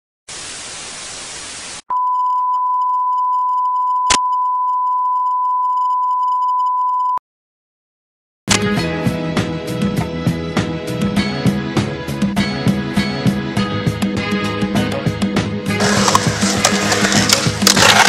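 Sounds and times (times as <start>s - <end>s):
tv static hiss: 0.3s - 1.8s
steady high beep tone: 1.9s - 7.2s.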